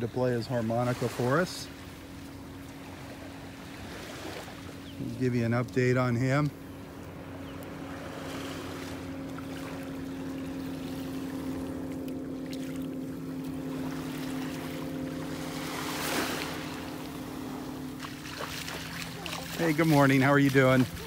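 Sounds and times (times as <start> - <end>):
engine drone: 0.0 - 21.0
small waves washing: 0.0 - 21.0
rush of surf or wind: 15.2 - 17.8.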